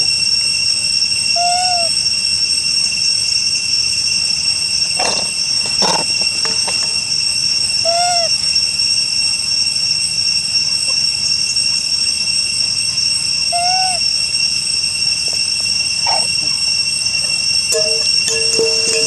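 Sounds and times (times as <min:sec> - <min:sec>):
insect chorus droning: 0:00.0 - 0:19.0
rising and falling call: 0:17.7 - 0:19.0.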